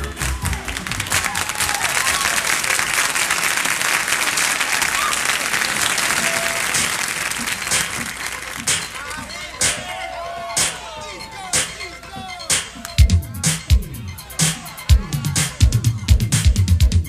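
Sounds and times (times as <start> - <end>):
song music: 0.0 - 1.8, 6.1 - 17.0
audience applauding and cheering: 0.0 - 11.6
whoops: 0.2 - 2.6, 4.9 - 6.8.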